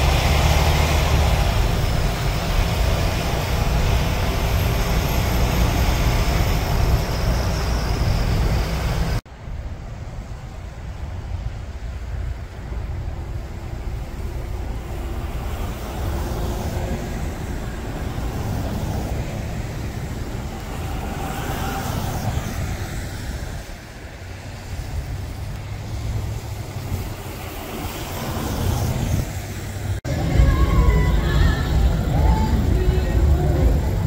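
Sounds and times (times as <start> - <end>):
car tyres rushing through snow: 0.0 - 9.2, 12.1 - 30.6
low rumble of traffic: 0.0 - 34.0.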